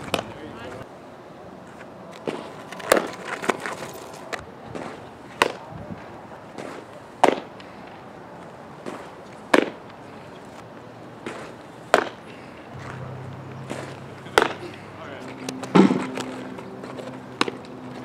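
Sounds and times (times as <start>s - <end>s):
softballs striking with sharp knocks: 0.0s - 0.8s, 4.7s - 5.6s, 6.6s - 8.0s, 8.8s - 10.0s, 11.2s - 18.0s.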